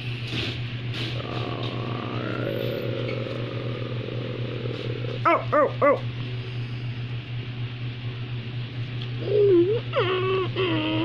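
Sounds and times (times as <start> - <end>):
steady low hum: 0.0 - 11.0
person imitating dog barks: 4.8 - 6.1.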